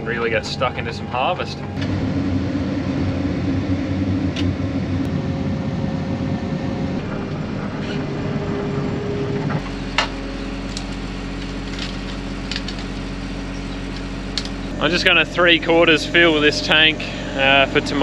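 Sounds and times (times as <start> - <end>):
engine rumbling unevenly: 0.0 - 18.0
steady mechanical hum: 0.0 - 18.0.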